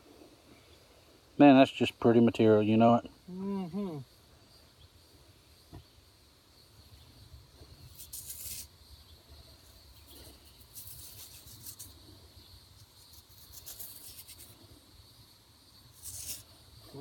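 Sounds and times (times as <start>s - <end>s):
high insect drone: 0.1s - 17.0s
gritty scraping of stone: 7.9s - 8.7s.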